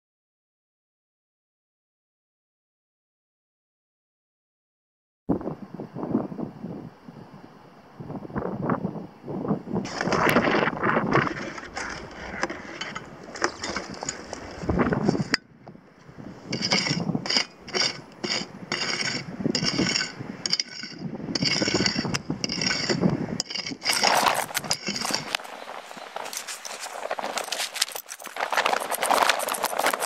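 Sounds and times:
loud rough noise: 9.9s - 15.4s, 16.3s - 30.0s
pick striking stony soil: 9.9s - 15.4s, 16.0s - 30.0s.

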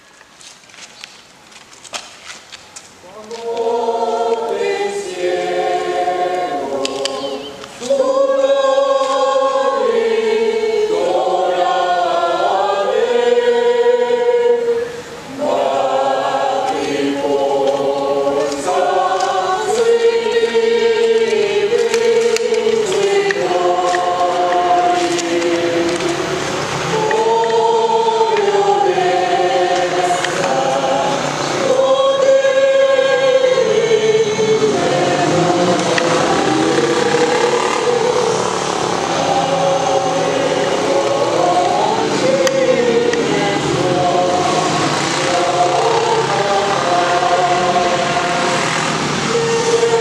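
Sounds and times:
mixed choir singing a carol: 3.0s - 50.0s.

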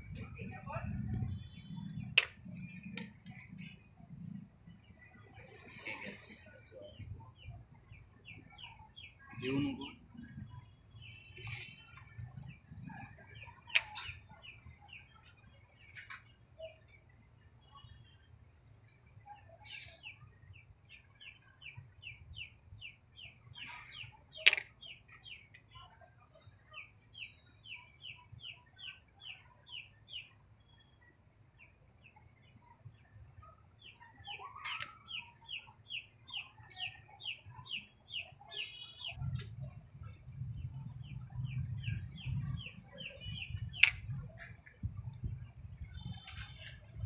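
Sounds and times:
game piece set on board: 13.7s - 14.2s, 24.4s - 24.7s, 43.8s - 44.5s.

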